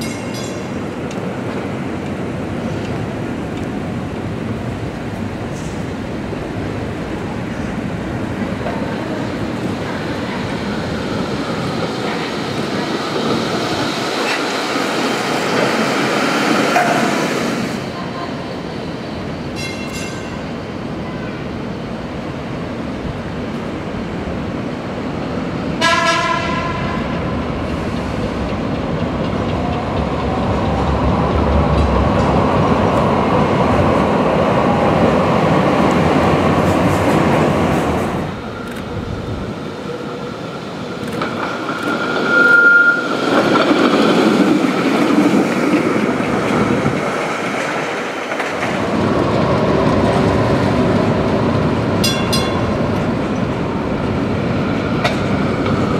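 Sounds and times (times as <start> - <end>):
streetcar wheels rumbling on rails: 0.0 - 55.9.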